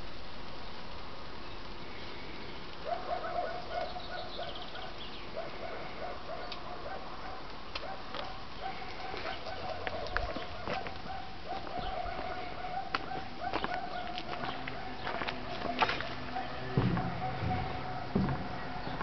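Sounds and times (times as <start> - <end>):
faint steady hiss: 0.0 - 14.8
bird calling: 2.9 - 6.7, 7.8 - 19.0.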